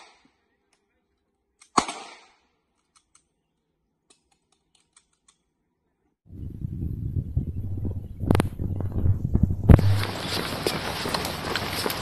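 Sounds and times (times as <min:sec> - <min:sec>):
pistol shot with echo: 0:01.7 - 0:02.4.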